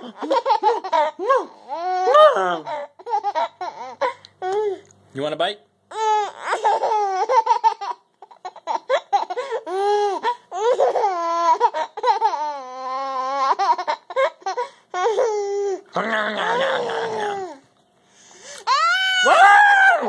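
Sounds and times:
baby laughing and squealing: 0.0s - 4.8s, 5.9s - 15.8s.

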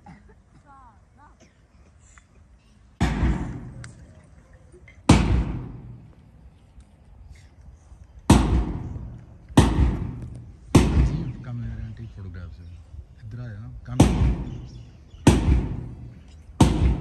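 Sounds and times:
drum booming beats: 3.0s - 3.8s, 5.1s - 6.1s, 8.3s - 11.5s, 13.9s - 17.0s.

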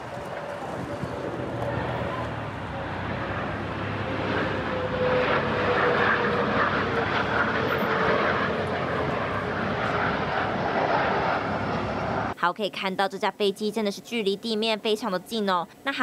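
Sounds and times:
jet airliner passing overhead: 0.0s - 12.4s.

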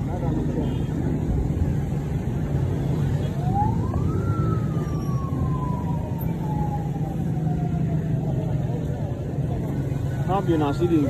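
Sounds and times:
low hum of road traffic: 0.0s - 11.0s
siren wailing: 3.0s - 8.7s.

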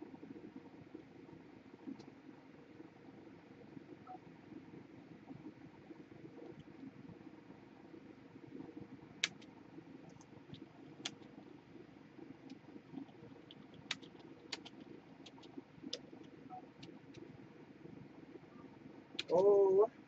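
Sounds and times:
low steady hum: 0.0s - 20.0s
computer keyboard clicks: 9.2s - 9.5s, 10.1s - 11.3s, 12.5s - 17.3s, 19.2s - 19.5s.

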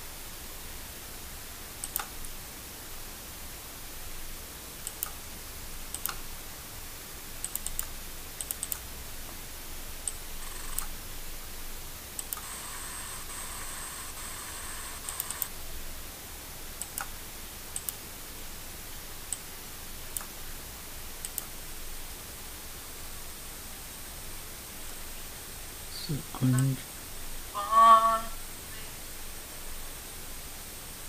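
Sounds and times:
faint hiss: 0.0s - 31.0s
mouse and keyboard clicks: 1.8s - 2.1s, 7.4s - 8.9s, 10.1s - 10.9s, 15.0s - 15.5s
faint high whine: 12.1s - 15.9s, 25.9s - 30.0s.

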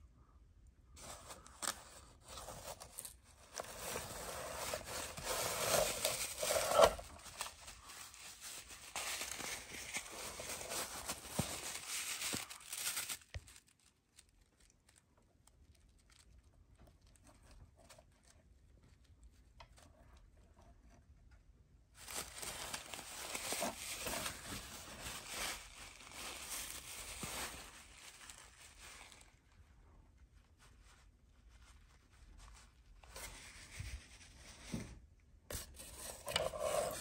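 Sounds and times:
packaging crinkling and tearing: 1.0s - 18.3s, 22.0s - 29.5s.

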